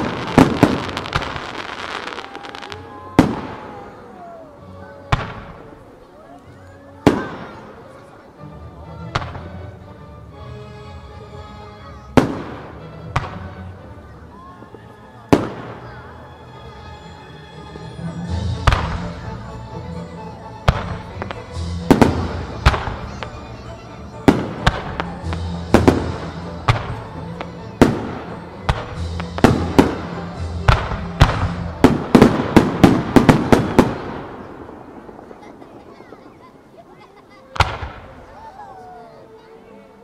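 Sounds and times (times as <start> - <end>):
firework bangs: 0.0 - 4.0, 5.1 - 5.7, 7.0 - 7.7, 12.2 - 13.6, 15.3 - 16.0, 20.6 - 23.4, 24.2 - 38.3
music: 0.0 - 40.0.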